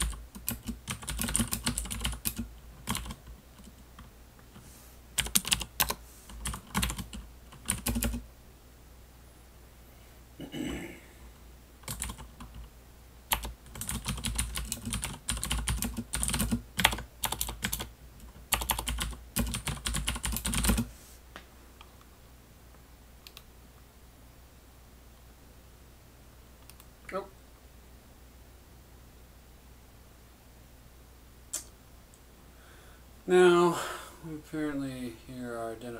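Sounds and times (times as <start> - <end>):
mechanical keyboard typing: 0.0 - 4.1, 5.2 - 8.2, 11.8 - 12.7, 13.3 - 20.9.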